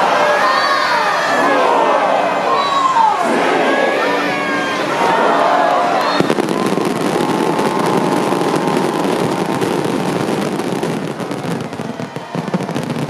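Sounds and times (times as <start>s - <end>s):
fireworks bursting and crackling: 6.0s - 13.0s.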